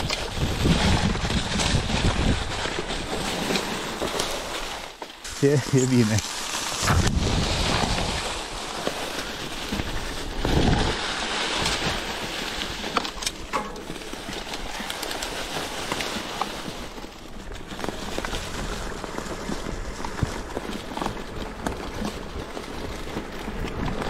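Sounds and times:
wind on microphone: 0.0s - 3.2s, 6.8s - 8.7s
bike clicks and knocks: 12.9s - 14.9s.

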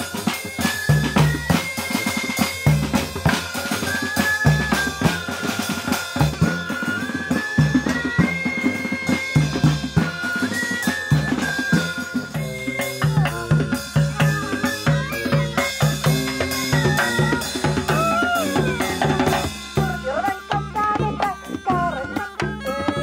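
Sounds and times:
bass and snare drums marching: 0.0s - 23.0s
high held-note melody: 0.0s - 23.0s.

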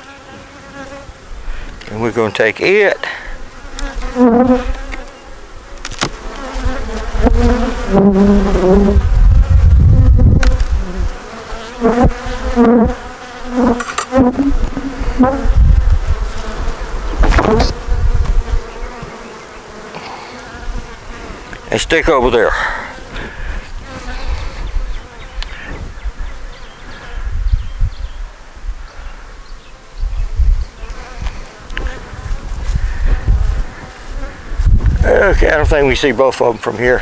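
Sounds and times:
honeybees buzzing: 0.0s - 37.0s
knocks on hive: 17.1s - 18.4s.

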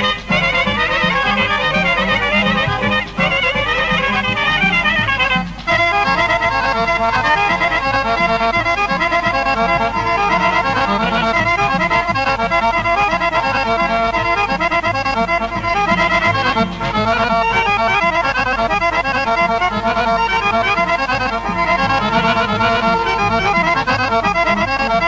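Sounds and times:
fast folk band melody: 0.0s - 25.0s.

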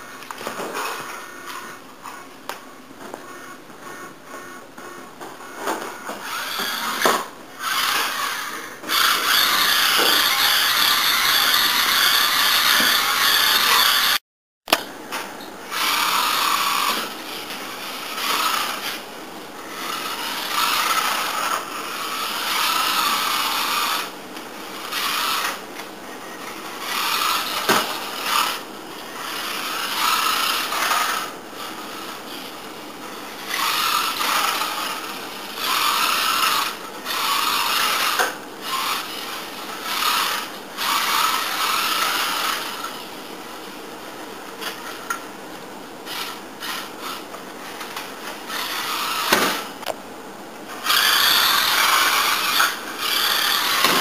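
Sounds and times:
small electric motor whining: 5.9s - 14.2s, 15.6s - 43.0s, 46.0s - 49.9s, 50.8s - 54.0s.

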